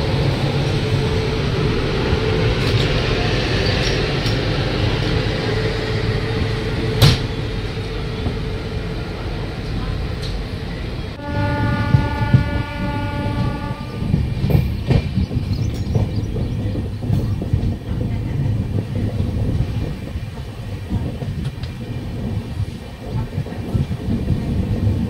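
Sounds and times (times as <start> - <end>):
train coach rumble: 0.0 - 25.0
train horn: 11.1 - 14.6
train wheel clicks: 13.4 - 24.9.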